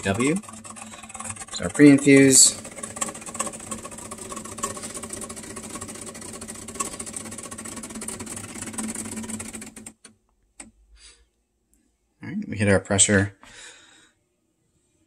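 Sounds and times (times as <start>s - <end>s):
espresso machine pump pulsing hum: 0.0s - 10.0s.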